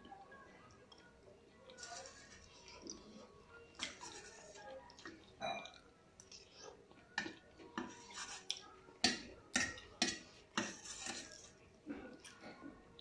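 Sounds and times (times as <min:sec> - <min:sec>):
chewing: 0:00.6 - 0:08.8, 0:10.9 - 0:13.0.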